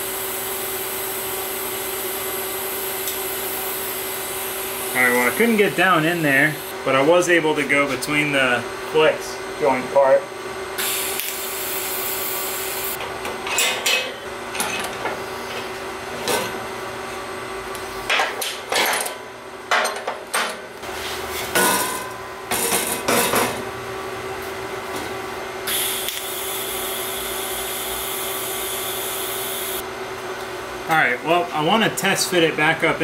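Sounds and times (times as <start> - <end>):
welding arc hissing: 0.0 - 6.8, 10.8 - 13.0, 25.7 - 29.8.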